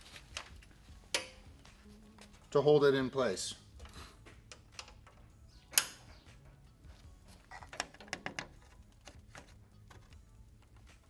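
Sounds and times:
metal clicks and taps on plastic: 7.6 - 11.0.

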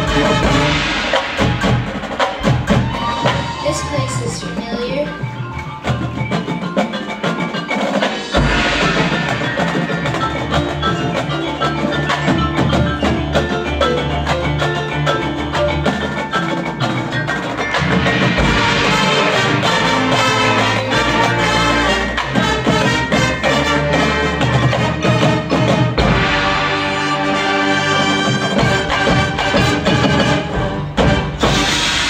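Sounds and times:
mallet percussion runs: 0.0 - 32.0
marching band music: 0.0 - 32.0.

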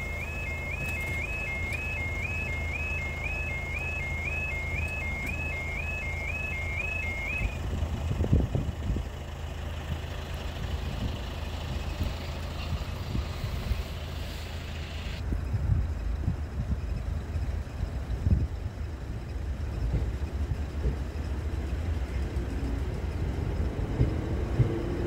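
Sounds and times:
level crossing alarm warbling: 0.0 - 7.6.

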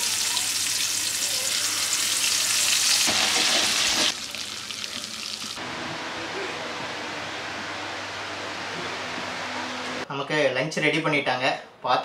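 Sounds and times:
fish sizzling in hot oil: 0.0 - 5.6.

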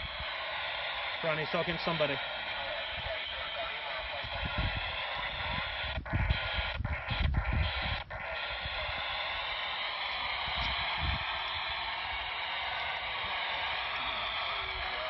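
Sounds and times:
faint noisy radio voices: 0.0 - 15.0
radio static hiss: 0.0 - 15.0
wind rumbling on microphone: 4.1 - 8.9, 10.4 - 11.7.

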